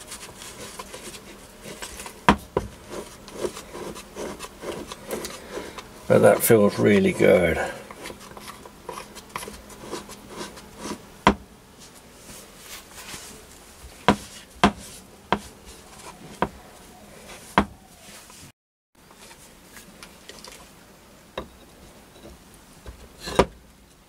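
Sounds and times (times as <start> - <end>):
cloth rubbing on metal: 0.0 - 11.1, 11.7 - 18.5.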